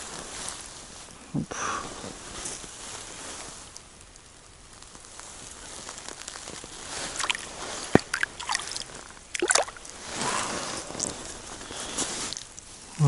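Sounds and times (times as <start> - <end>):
snow and slush crunching: 0.0 - 3.8, 4.8 - 13.0
water sloshing: 7.0 - 11.1.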